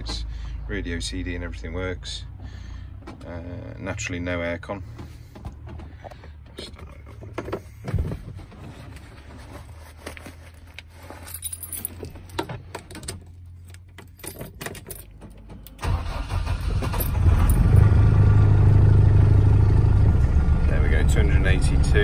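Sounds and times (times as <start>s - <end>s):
diesel engine cranking and idling: 0.0s - 9.5s, 11.8s - 22.0s
keys rattling in ignition: 10.0s - 17.9s.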